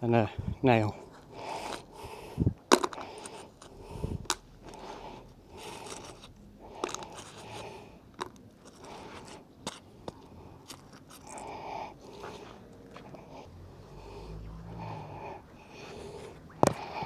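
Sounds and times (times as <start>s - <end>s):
gloved hands scraping debris: 5.6s - 11.4s.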